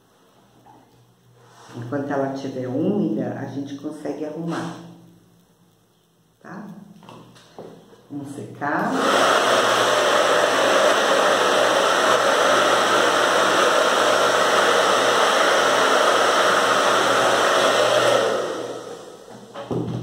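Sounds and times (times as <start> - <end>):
hair dryer blowing: 8.8 - 19.8.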